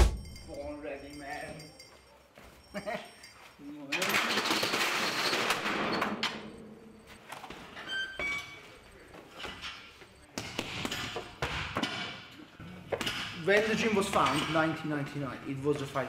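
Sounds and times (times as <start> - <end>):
short ringing tones: 0.0 - 7.1.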